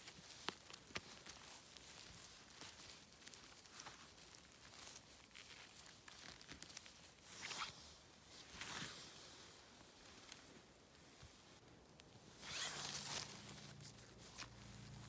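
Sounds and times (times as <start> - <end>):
moss rustling and tearing: 0.0 - 15.0
swishes through undergrowth: 12.3 - 15.0.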